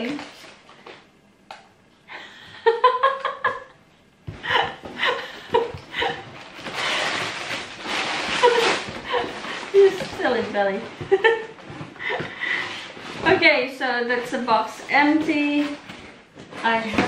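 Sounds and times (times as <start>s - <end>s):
woman laughing: 2.1s - 3.8s, 4.4s - 6.4s, 8.4s - 10.1s, 11.0s - 12.6s.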